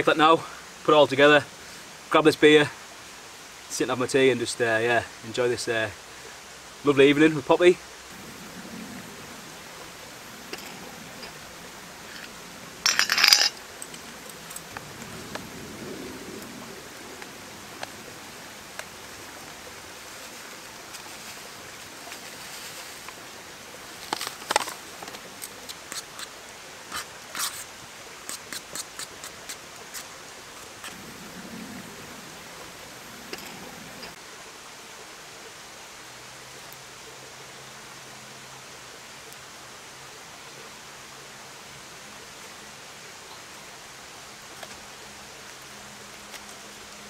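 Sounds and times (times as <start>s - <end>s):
steady soft hiss: 0.0s - 47.0s
utensils clattering on metal pot: 12.1s - 14.0s.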